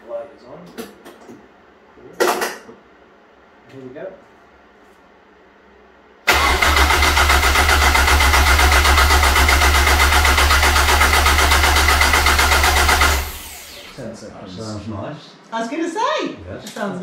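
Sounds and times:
starter motor cranking engine: 6.3 - 14.0.

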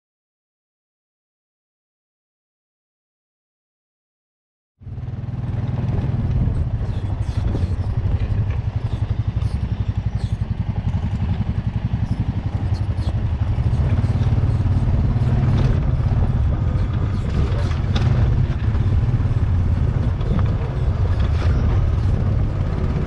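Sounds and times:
atv engine running: 4.8 - 23.0.

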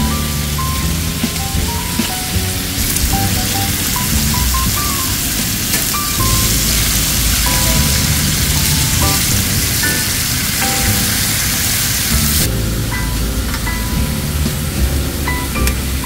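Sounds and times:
background music with bass: 0.0 - 16.0
meat sizzling on a griddle: 0.2 - 12.5.

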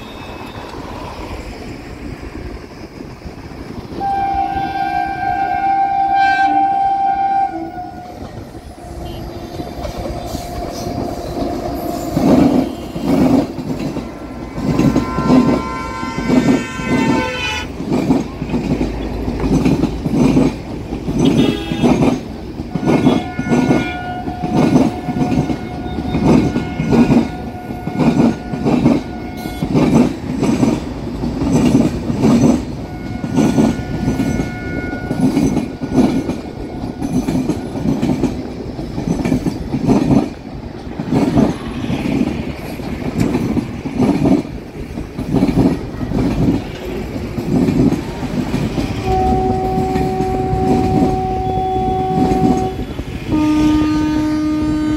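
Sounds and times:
train horn blasts: 4.0 - 13.5, 14.5 - 17.7, 21.2 - 22.1, 22.7 - 29.8, 32.9 - 35.9, 49.0 - 54.9
train wheels clattering over rail joints: 8.2 - 53.3.

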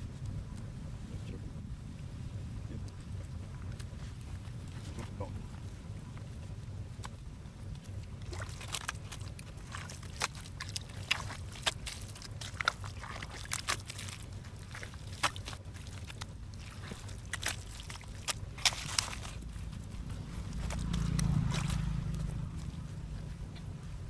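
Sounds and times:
steady low rumble: 0.0 - 24.0
wet mud squelching: 7.0 - 24.0.

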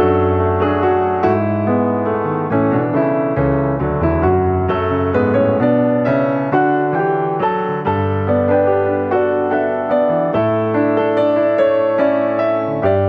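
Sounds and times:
gentle piano music: 0.0 - 13.0.

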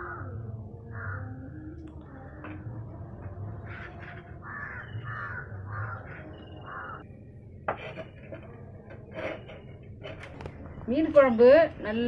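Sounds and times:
crow cawing: 0.0 - 0.3, 0.9 - 1.4, 3.7 - 7.0.

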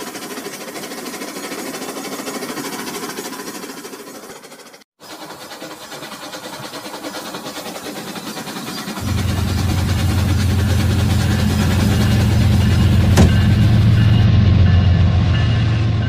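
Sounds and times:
toy train motor and wheel clatter: 0.0 - 12.8.

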